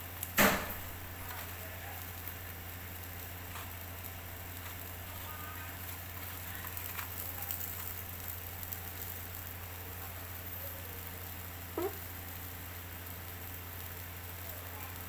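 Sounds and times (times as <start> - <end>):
charcoal crackling: 0.0 - 15.0
meat sizzling on a grill: 0.0 - 15.0.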